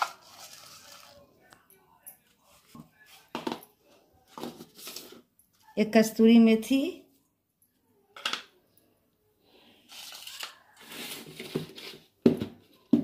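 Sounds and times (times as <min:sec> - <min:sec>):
plastic containers rustling and scraping: 0:00.0 - 0:01.3, 0:04.3 - 0:05.3, 0:09.9 - 0:13.0.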